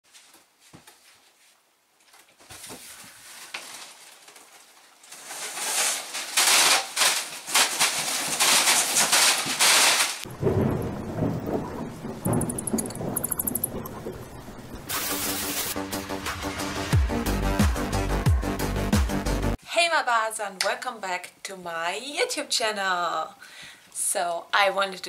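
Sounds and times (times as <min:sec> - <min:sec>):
rain downpour: 0:10.2 - 0:15.8
thunder claps and rumble: 0:10.3 - 0:15.0.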